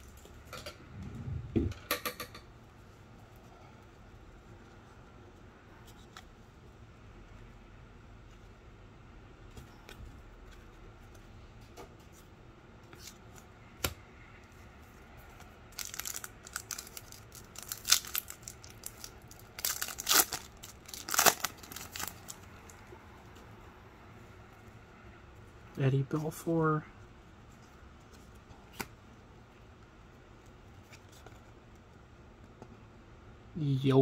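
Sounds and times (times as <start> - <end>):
cards handled quietly: 3.1 - 7.4, 9.4 - 23.6, 25.4 - 32.9
foil wrapper ripping and crackling: 15.7 - 22.8.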